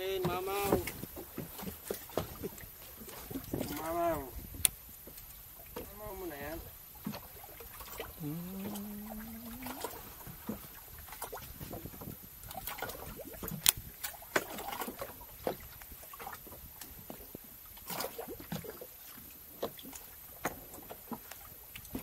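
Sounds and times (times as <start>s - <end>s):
water splashing against boat hull: 0.0s - 22.0s.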